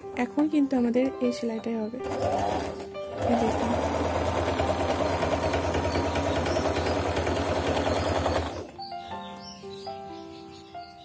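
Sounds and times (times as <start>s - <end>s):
electric sewing machine stitching: 2.0s - 8.8s.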